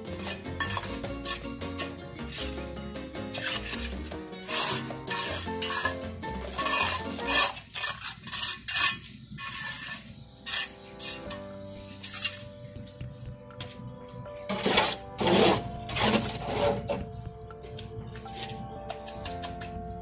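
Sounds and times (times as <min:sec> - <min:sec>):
trowel scraping grout on tiles: 0:00.0 - 0:12.6, 0:14.5 - 0:17.1
background music: 0:00.0 - 0:20.0.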